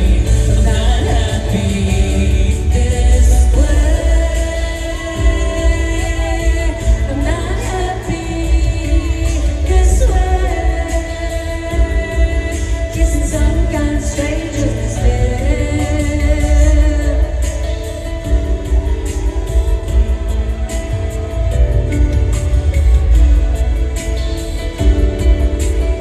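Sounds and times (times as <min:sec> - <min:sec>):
heavy bass: 0:00.0 - 0:26.0
woman singing: 0:00.0 - 0:26.0.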